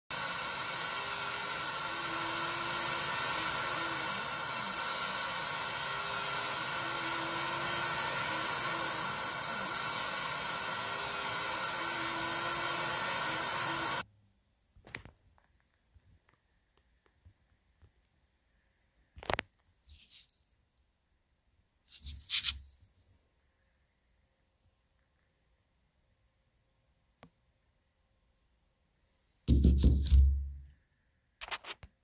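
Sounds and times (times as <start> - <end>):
laser engraver hissing: 0.0 - 14.0.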